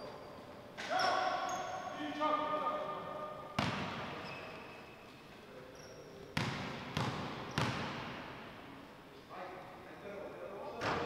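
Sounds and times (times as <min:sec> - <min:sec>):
basketball bouncing with echo: 0:03.6 - 0:04.4, 0:06.4 - 0:08.5.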